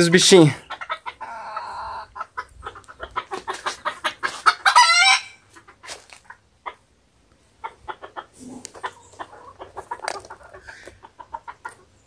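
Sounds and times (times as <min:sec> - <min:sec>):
chickens clucking: 0:00.0 - 0:12.0
loud wavering chicken call: 0:03.1 - 0:05.4.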